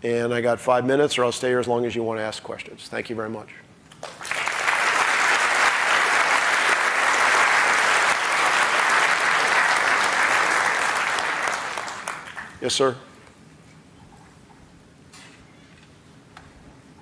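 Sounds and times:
audience applauding: 0:04.0 - 0:12.6.

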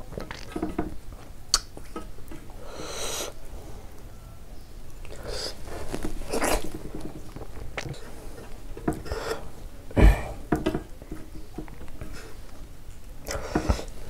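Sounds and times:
person chewing: 0:06.2 - 0:06.7, 0:07.3 - 0:08.1
loud thump: 0:10.0 - 0:10.4.

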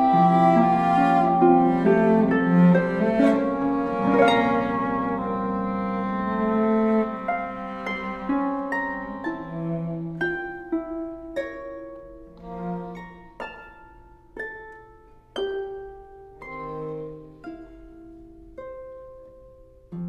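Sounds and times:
cello low held note: 0:00.0 - 0:10.9
harp plucking notes: 0:00.0 - 0:20.0.

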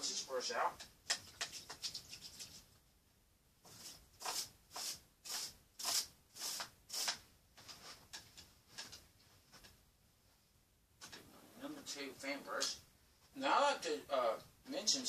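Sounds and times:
paintbrush scrubbing strokes: 0:01.3 - 0:02.7, 0:03.6 - 0:08.0.

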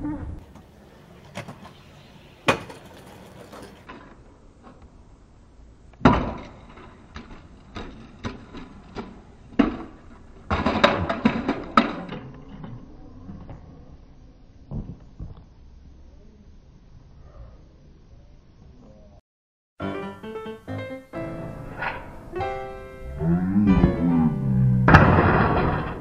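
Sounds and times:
scooter hitting hard ground: 0:02.4 - 0:04.0, 0:06.0 - 0:12.1
rattling clatter: 0:24.8 - 0:26.0.

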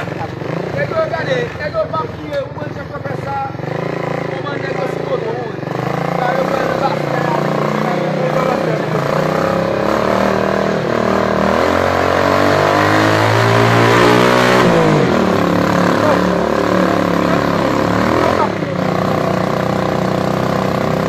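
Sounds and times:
vehicle engine revving: 0:00.0 - 0:21.0.

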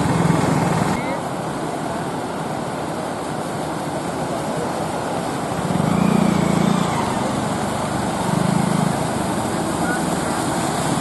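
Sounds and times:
splashing water: 0:00.0 - 0:11.0
small engines running: 0:04.7 - 0:11.0.

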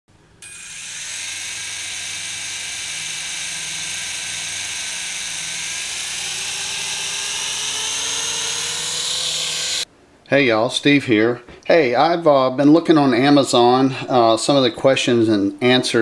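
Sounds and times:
toy helicopter motors whirring: 0:00.4 - 0:09.9.

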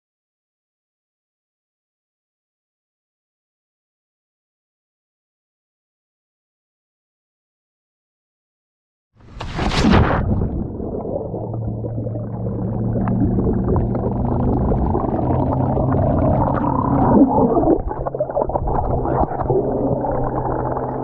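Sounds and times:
splash into water: 0:09.2 - 0:19.6
low underwater hum: 0:09.3 - 0:21.0
underwater bubbling and gurgling: 0:09.3 - 0:21.0.

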